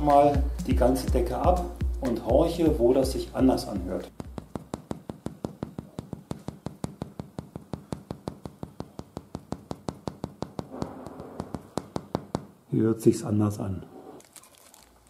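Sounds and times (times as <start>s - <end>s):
fingertip knocking on plasterboard: 3.8s - 12.5s.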